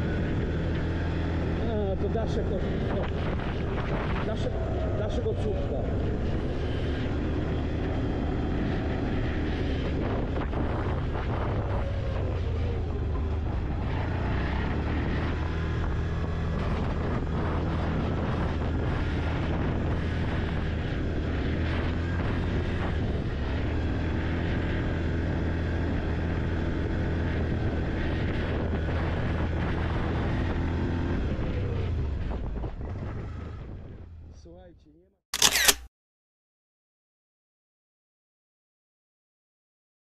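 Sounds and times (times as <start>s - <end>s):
quad bike engine running: 0.0s - 33.4s.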